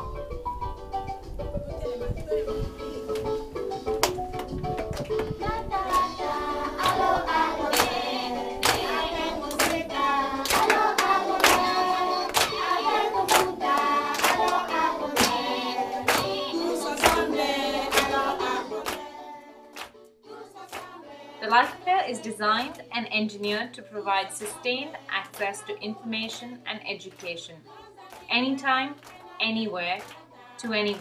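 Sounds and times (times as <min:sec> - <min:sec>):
hands clapping in time: 0:03.1 - 0:19.1, 0:19.7 - 0:20.1, 0:20.7 - 0:21.0, 0:29.0 - 0:29.3, 0:29.9 - 0:30.2
children singing with teacher: 0:05.3 - 0:23.0.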